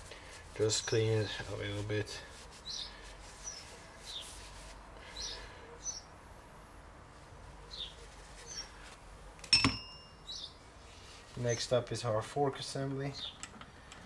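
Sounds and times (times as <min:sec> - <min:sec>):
birds chirping: 0:00.6 - 0:04.4, 0:05.0 - 0:06.2, 0:07.6 - 0:08.8, 0:09.6 - 0:10.7, 0:13.0 - 0:13.5.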